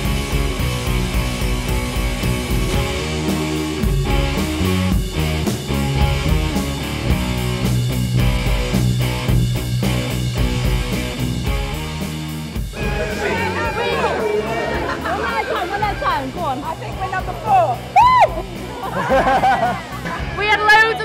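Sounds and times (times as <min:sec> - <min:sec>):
guitar rock music: 0:00.0 - 0:21.0
steady drum beat: 0:00.0 - 0:21.0.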